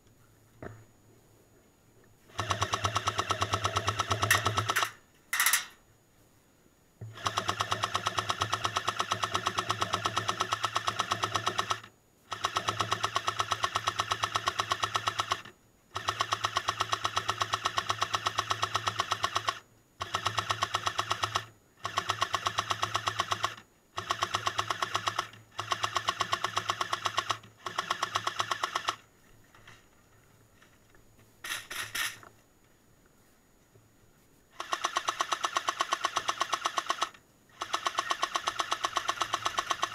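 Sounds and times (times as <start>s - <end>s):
airsoft gun full-auto bursts: 2.3s - 5.6s, 7.1s - 29.1s, 34.5s - 39.9s.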